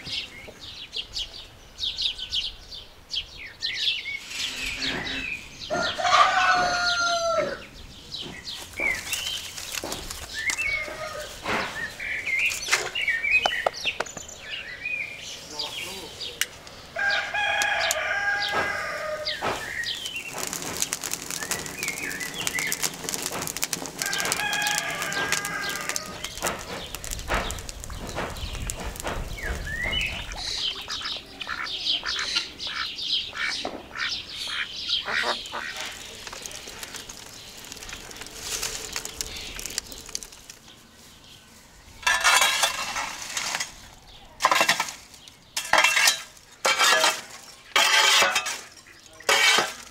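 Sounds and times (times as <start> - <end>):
small birds chirping: 0.0 - 42.8, 43.7 - 46.6
burning wood scraping and knocking: 3.8 - 32.4, 33.1 - 49.9
wood fire crackling: 3.8 - 49.9
rooster crowing: 4.8 - 7.6, 17.0 - 19.4, 24.0 - 26.3.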